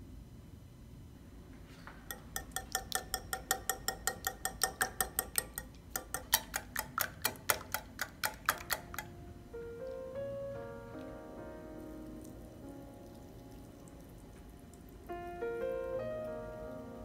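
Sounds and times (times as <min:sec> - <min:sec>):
whisk clinking against glass bowl: 0:02.1 - 0:09.1.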